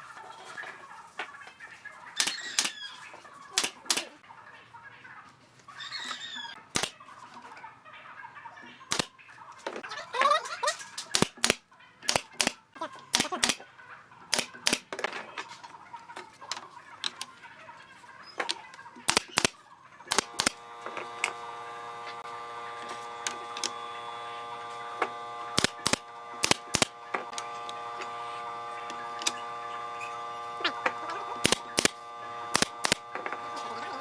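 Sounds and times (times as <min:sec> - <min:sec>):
steady hum: 0:20.1 - 0:34.0.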